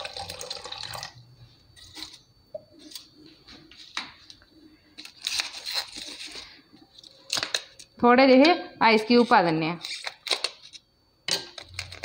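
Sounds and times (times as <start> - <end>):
water pouring into steel jar: 0.0 - 1.2.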